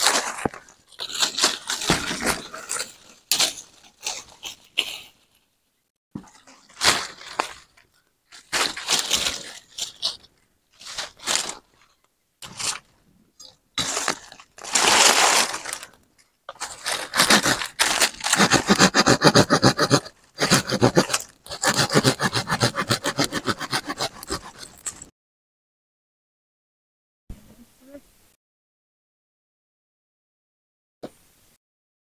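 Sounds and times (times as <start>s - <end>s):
wood cracks and scrapes: 0.0s - 4.9s, 13.8s - 25.1s
hand saw sawing wood: 16.6s - 25.1s.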